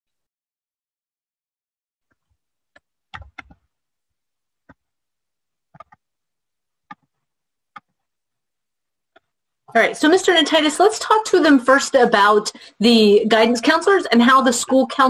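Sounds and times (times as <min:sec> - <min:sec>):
faint clicks and taps: 0:02.1 - 0:03.7, 0:04.6 - 0:04.9, 0:05.7 - 0:06.1, 0:06.8 - 0:08.1, 0:09.1 - 0:09.4.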